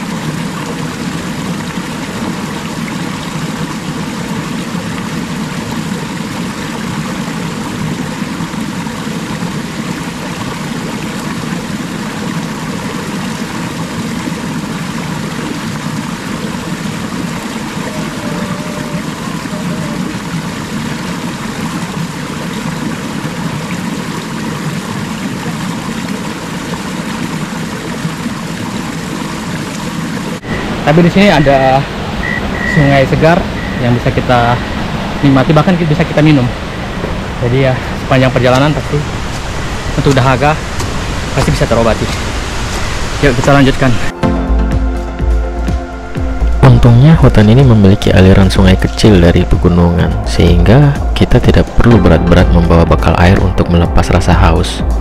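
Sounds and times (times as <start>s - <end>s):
stream rushing over rocks: 0.0s - 44.2s.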